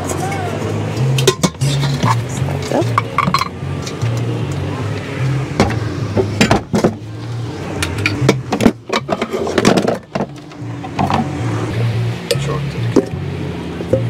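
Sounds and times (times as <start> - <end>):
metal pots clinking and knocking: 1.1 - 4.6, 7.8 - 11.4.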